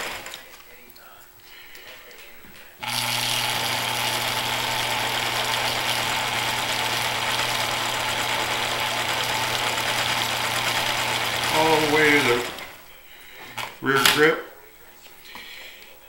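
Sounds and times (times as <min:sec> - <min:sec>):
electric motor humming: 0:02.8 - 0:12.9.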